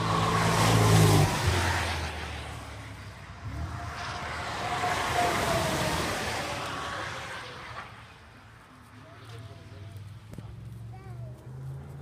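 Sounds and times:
race car driving off: 0.0 - 8.3
race car engine passing: 0.0 - 8.6.

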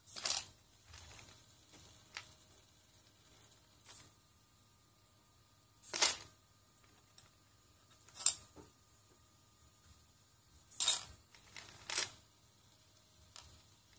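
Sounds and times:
plastic bricks clattering: 10.8 - 12.2.

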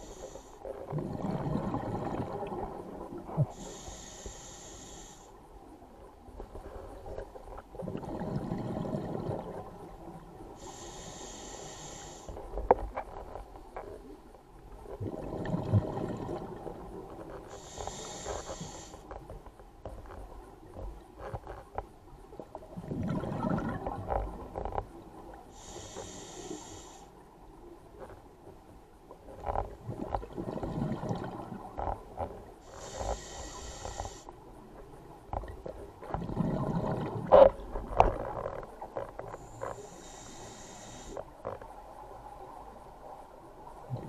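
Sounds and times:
regulator inhale hiss: 0.0 - 0.7, 3.4 - 5.4, 10.5 - 12.6, 17.4 - 19.1, 25.5 - 27.2, 32.6 - 34.3, 39.4 - 41.3
exhaled bubbles rumbling: 0.9 - 3.6, 7.7 - 10.0, 15.0 - 16.9, 22.6 - 24.6, 29.7 - 31.8, 36.0 - 38.5.

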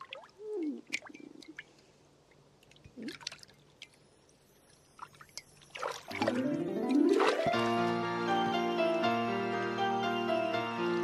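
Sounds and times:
small water splashes and trickles: 0.0 - 7.7
music: 6.1 - 11.0.

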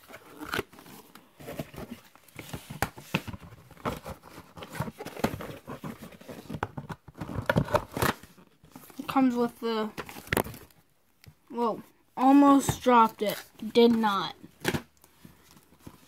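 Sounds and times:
plastic case clicks and rustles: 2.4 - 8.3.

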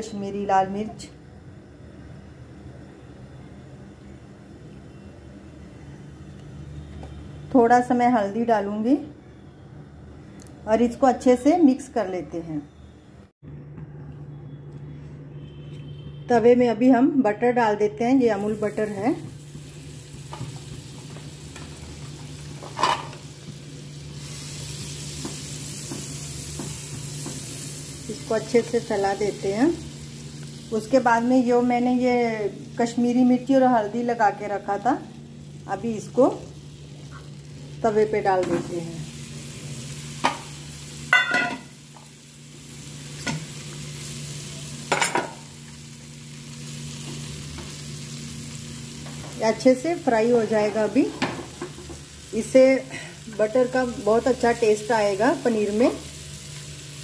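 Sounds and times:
butter sizzling on a hot pan: 18.4 - 57.0.

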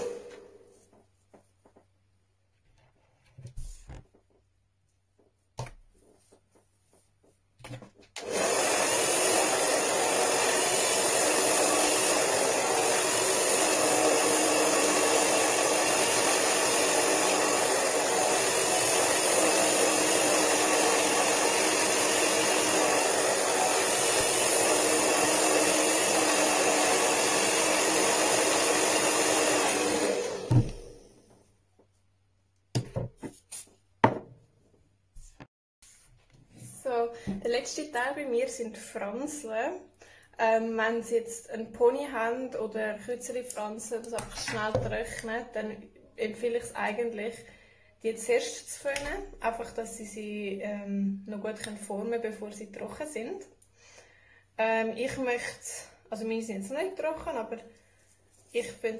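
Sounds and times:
hair dryer running: 0.0 - 0.9, 8.2 - 31.3.

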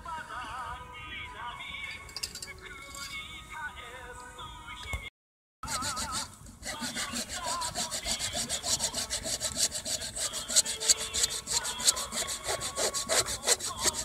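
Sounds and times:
hand saw cutting wood: 5.6 - 14.0.

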